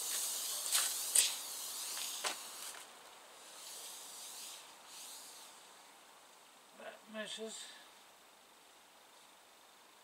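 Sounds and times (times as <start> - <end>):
shoes scuffing on concrete: 0.0 - 2.9
steady high hiss: 0.0 - 10.0.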